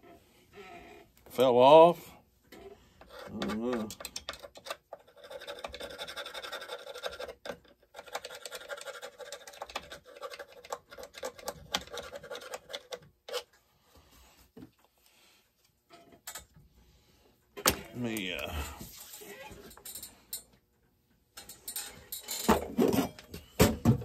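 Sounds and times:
metal parts scratching and clicking: 0:03.0 - 0:13.5.

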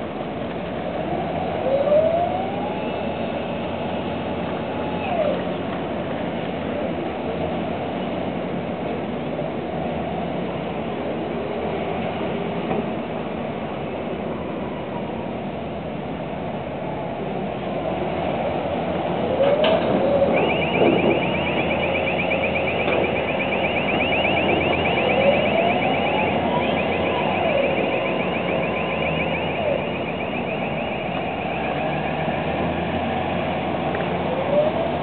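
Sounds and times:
diesel engine running: 0:18.3 - 0:35.0
rapidly pulsing warning alarm: 0:20.0 - 0:32.9.

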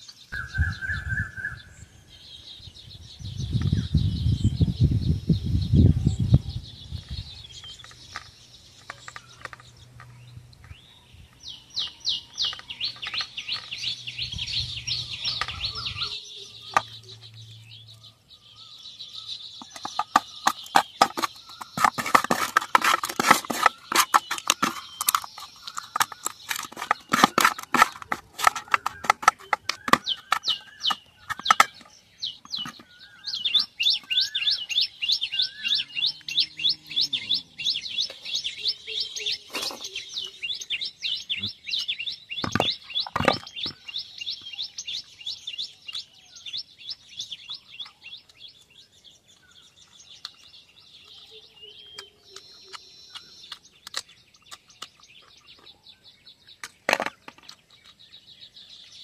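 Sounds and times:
bird chirping: 0:00.0 - 0:59.0
food mixed by hand in metal bowl: 0:19.8 - 0:31.7.

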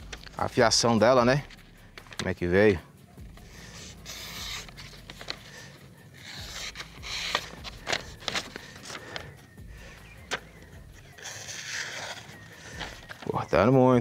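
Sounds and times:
knife slicing paper: 0:03.5 - 0:09.2, 0:11.1 - 0:13.3
paper rustling: 0:03.5 - 0:13.6.

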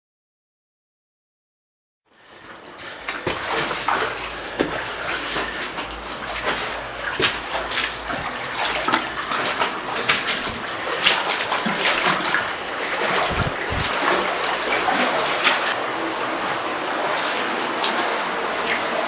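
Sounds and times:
footsteps splashing through water: 0:02.8 - 0:15.8.

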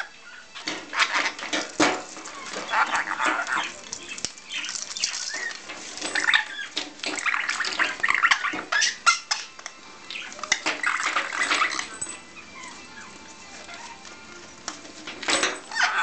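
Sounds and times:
parrot chattering harshly: 0:02.4 - 0:03.8, 0:15.7 - 0:16.0
plastic toys clattering: 0:14.7 - 0:16.0.

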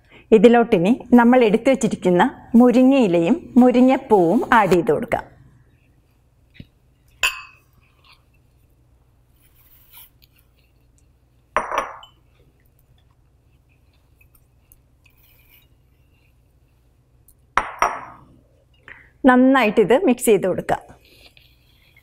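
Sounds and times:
ceramic bowl clinking against glass: 0:07.2 - 0:07.7, 0:11.6 - 0:12.2.

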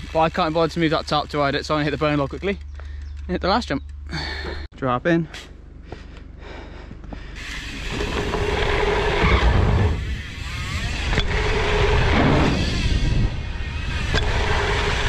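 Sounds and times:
bike tyres rushing over dirt: 0:00.0 - 0:02.3, 0:07.4 - 0:15.0
wind noise on microphone: 0:07.8 - 0:15.0.

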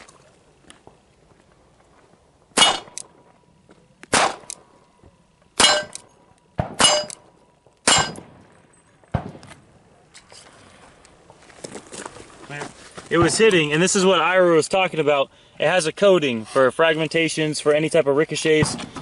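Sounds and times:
pistol shots hitting steel plate: 0:02.6 - 0:03.1, 0:04.1 - 0:04.7, 0:05.6 - 0:09.4.

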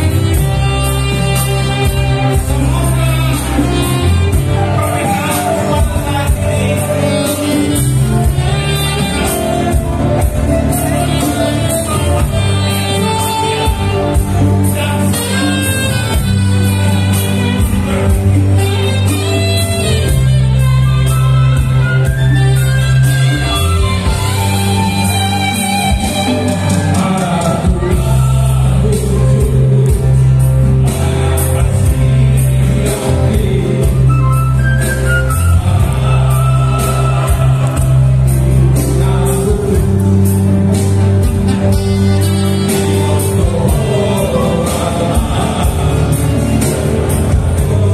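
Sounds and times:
men's vocal group singing: 0:00.0 - 0:20.6, 0:22.9 - 0:47.9
live band with guitar: 0:00.0 - 0:47.9.

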